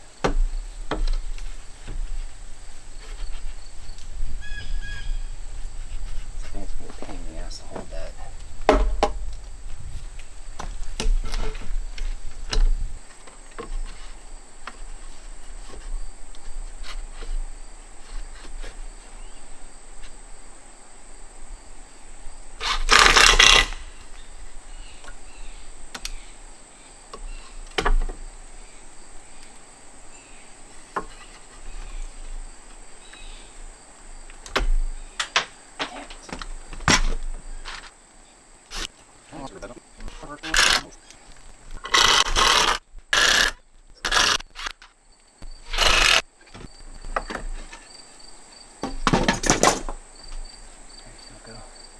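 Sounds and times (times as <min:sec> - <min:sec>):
high insect drone: 0:00.0 - 0:51.9
lumber and tools knocking: 0:08.7 - 0:09.2.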